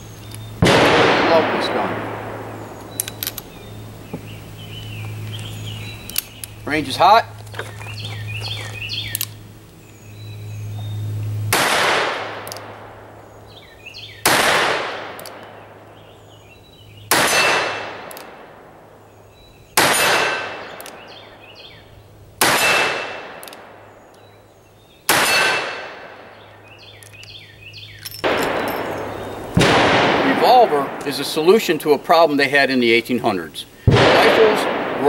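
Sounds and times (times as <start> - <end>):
revolver shots with echo: 0.6 - 3.0, 17.1 - 18.7, 22.4 - 23.8, 28.2 - 31.8, 33.9 - 35.0.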